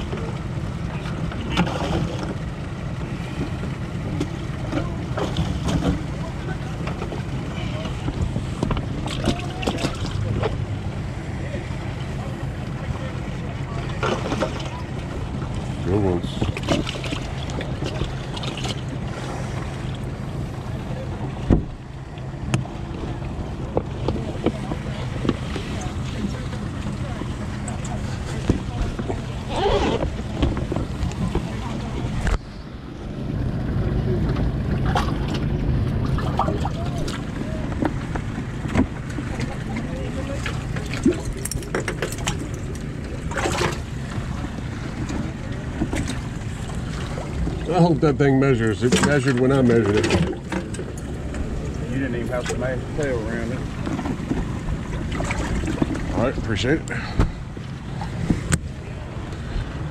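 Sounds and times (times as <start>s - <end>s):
wind rumble on microphone: 0.0s - 47.8s, 48.6s - 59.9s
low motor hum: 0.0s - 59.9s
water splashing: 0.0s - 59.9s
wind on microphone: 53.6s - 59.9s.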